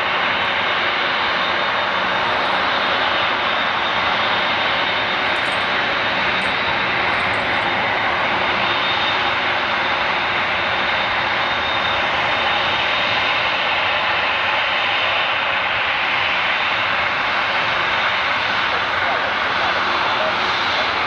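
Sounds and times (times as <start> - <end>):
jet engines rumbling with whine: 0.0 - 21.0.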